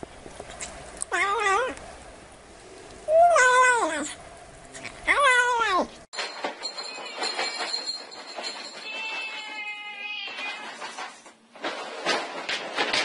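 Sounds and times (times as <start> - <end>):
cat meowing: 9.0 - 10.8.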